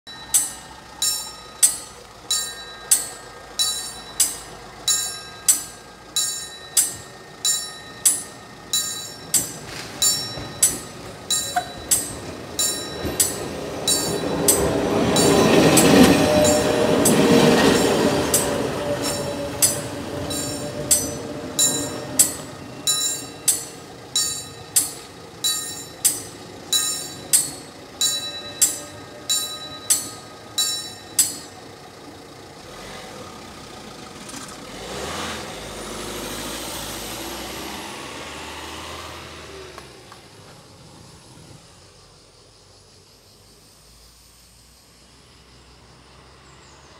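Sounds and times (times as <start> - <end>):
level crossing bell ringing: 0.1 - 31.8
electric train passing: 0.1 - 46.9.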